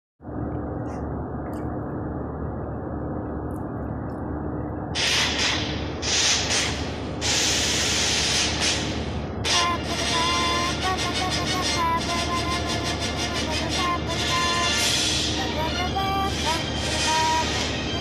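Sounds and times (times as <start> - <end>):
loud bursts of harsh hiss: 5.0 - 9.1.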